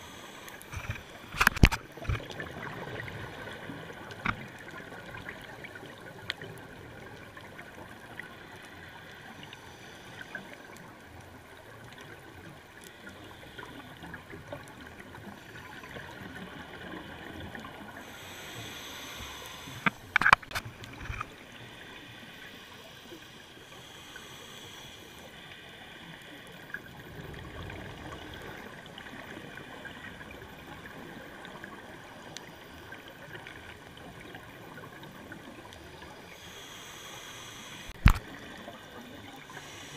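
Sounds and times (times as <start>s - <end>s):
regulator breathing hiss and bubbles: 0.0s - 39.9s
faint clicks: 0.2s - 17.8s, 18.4s - 27.0s, 30.8s - 39.9s.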